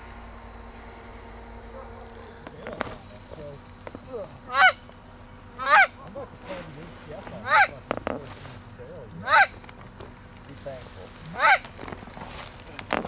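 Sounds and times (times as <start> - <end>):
goose honking: 0.7 - 8.5, 9.2 - 9.6, 11.2 - 12.0.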